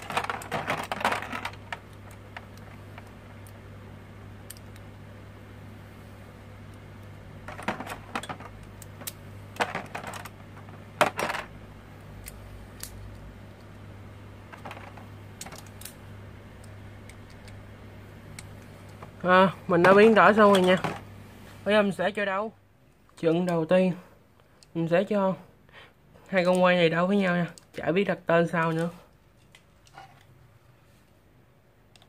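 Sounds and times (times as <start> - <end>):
low hum: 0.0 - 23.1.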